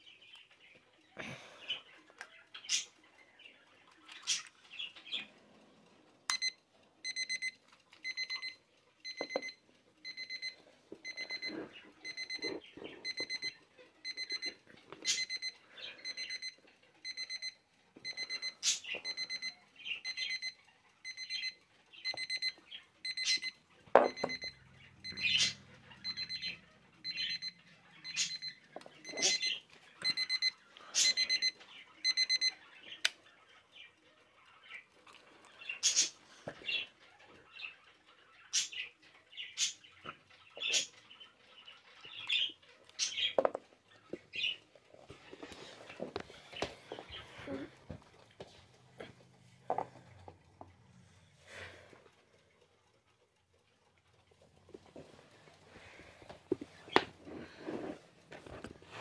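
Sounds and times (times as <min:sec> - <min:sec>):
alarm clock beeping: 0:05.9 - 0:34.9
sharp clicks and chirps: 0:18.1 - 0:36.9.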